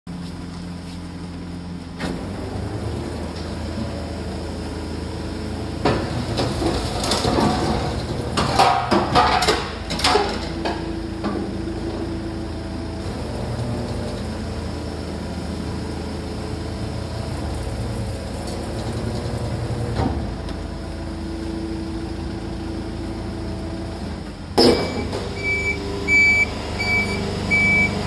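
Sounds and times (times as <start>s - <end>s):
garbage truck hydraulic drone: 0.3s - 28.0s.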